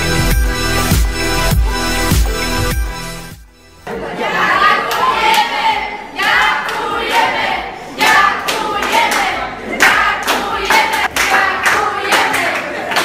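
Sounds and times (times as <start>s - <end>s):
voices singing together: 3.8s - 13.0s
hand-clapping: 8.0s - 13.0s.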